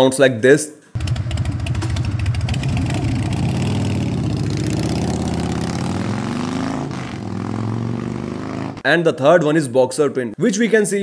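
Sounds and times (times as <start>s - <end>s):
motorcycle engine revving: 1.0s - 8.8s.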